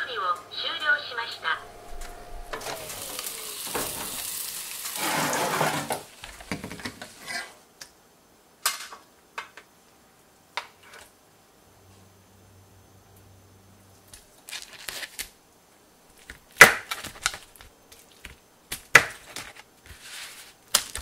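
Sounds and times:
oven door opening: 0:01.6 - 0:04.4
chicken sizzling on baking tray: 0:02.6 - 0:06.3.

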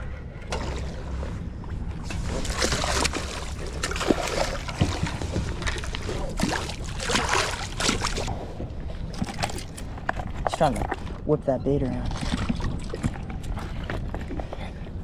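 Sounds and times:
low wind rumble on microphone: 0:00.0 - 0:15.0
fish splashing at surface: 0:02.1 - 0:08.3.

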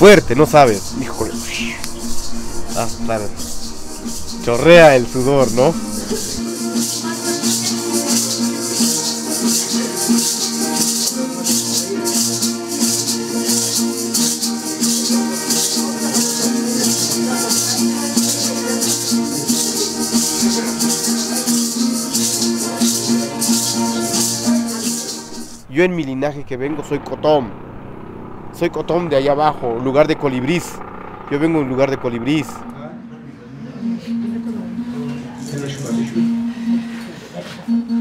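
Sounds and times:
plucked string instruments: 0:00.0 - 0:25.7, 0:32.0 - 0:38.0
hand rattles shaken: 0:02.7 - 0:25.6.

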